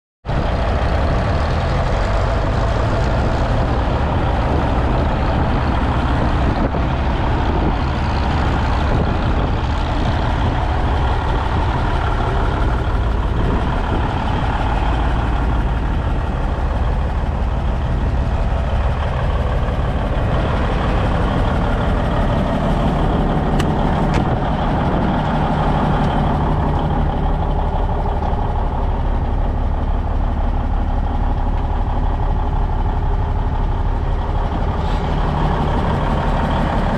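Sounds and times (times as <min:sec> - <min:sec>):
diesel engine idling: 0:00.3 - 0:36.9.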